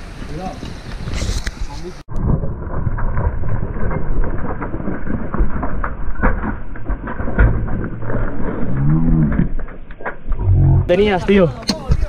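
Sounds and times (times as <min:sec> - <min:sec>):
muffled bike rumble: 0:02.1 - 0:10.9
tyres clattering on stone: 0:02.7 - 0:10.4.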